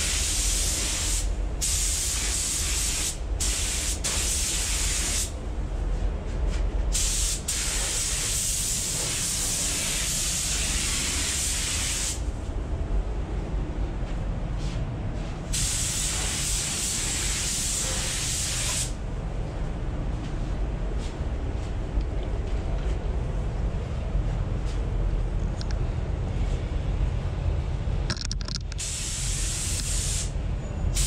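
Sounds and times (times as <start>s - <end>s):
low air handling rumble: 0.0s - 31.0s
paint spray gun hissing: 7.0s - 12.2s, 15.6s - 18.9s, 28.8s - 30.3s.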